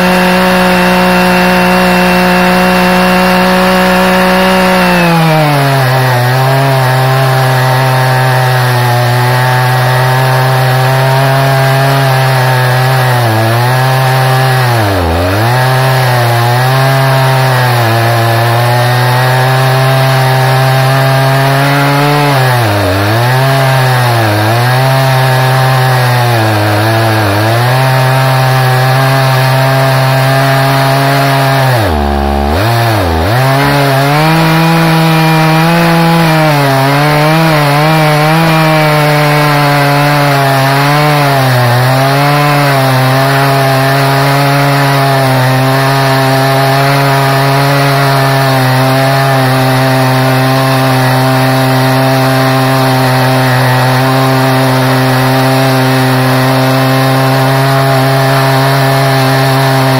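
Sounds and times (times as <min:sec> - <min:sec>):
chainsaw cutting log: 0:00.0 - 0:59.9.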